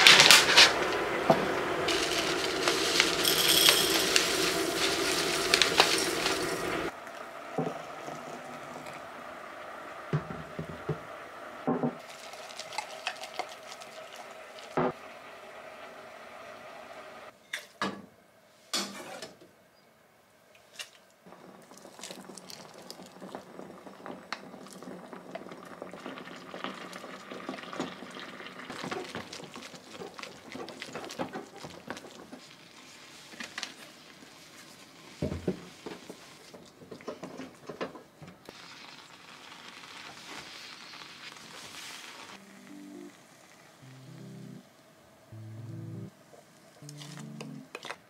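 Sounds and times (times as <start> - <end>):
wooden spatula stirring and scraping: 0.0 - 6.9, 28.7 - 37.8
soup pouring: 0.0 - 11.2, 12.0 - 14.8, 21.3 - 32.8.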